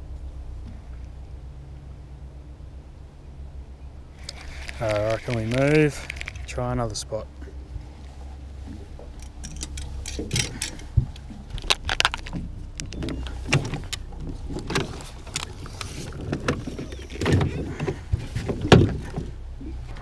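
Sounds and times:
gear clunking and rattling on boat: 4.1s - 20.0s.

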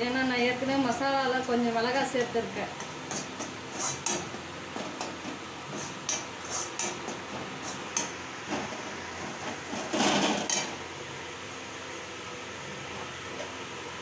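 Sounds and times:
metal spoon scraping metal pan: 2.8s - 8.1s.

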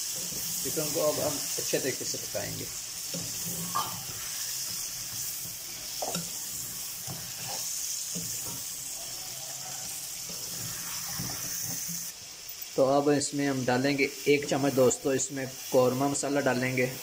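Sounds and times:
steel spoon scraping a pan: 0.0s - 12.7s
chicken sizzling in gravy: 0.0s - 17.0s.

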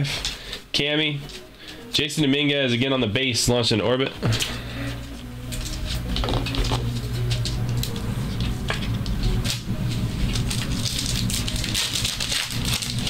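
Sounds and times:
steady low hum: 4.2s - 13.0s
cards rustling and clicking: 4.3s - 13.0s
wrappers crinkling: 4.4s - 13.0s.

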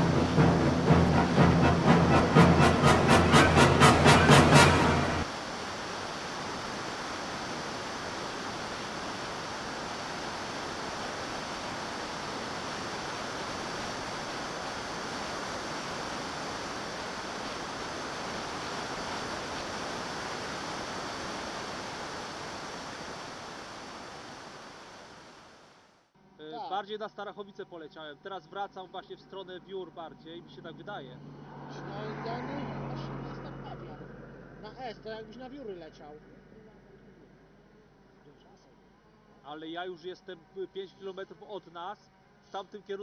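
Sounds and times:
rushing wind noise: 0.0s - 25.4s.

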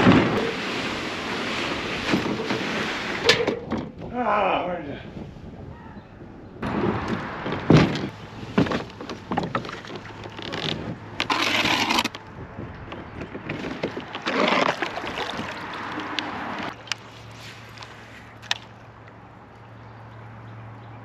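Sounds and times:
paddle strokes splashing: 0.0s - 3.3s, 13.5s - 18.6s
kayak hull knocking and scraping: 0.0s - 4.2s, 6.6s - 12.2s, 12.8s - 18.6s.

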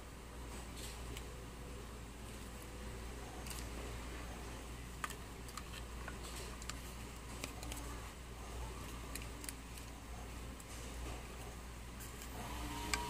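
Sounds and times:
low steady hum: 0.0s - 13.0s
plastic parts clicking: 4.9s - 8.0s, 8.8s - 10.0s.

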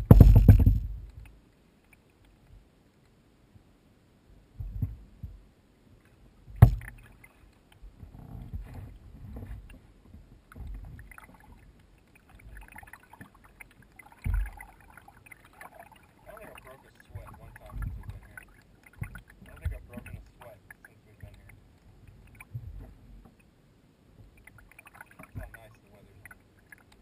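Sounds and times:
sharp knock on kayak: 0.0s - 0.9s, 6.6s - 6.9s
paddle thumps: 0.0s - 1.0s, 6.5s - 7.0s, 19.0s - 20.2s
water splashing: 6.6s - 7.7s, 10.4s - 23.5s, 24.2s - 27.0s.

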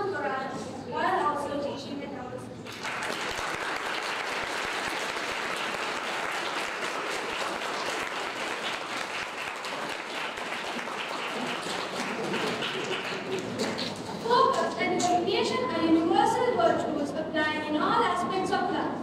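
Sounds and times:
crowd applauding: 2.6s - 14.7s
students clapping on stage: 2.6s - 14.8s.

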